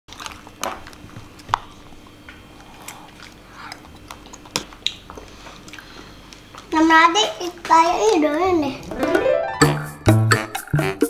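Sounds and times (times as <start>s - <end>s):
soft eating sounds: 0.1s - 8.9s.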